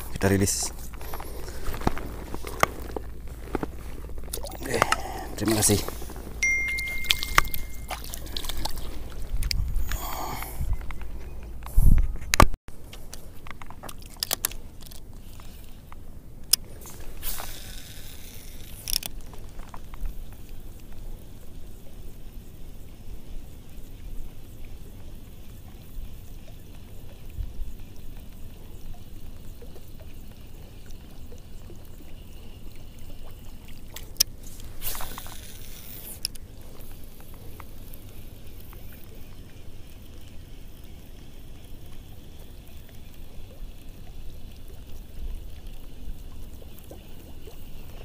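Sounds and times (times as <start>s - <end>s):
water splashing: 0.0s - 11.5s
wind rumble on microphone: 8.4s - 12.6s, 27.3s - 27.8s.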